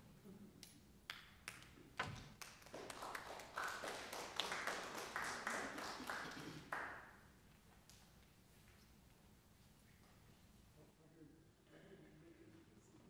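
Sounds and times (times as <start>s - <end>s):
people clapping: 1.1s - 7.2s.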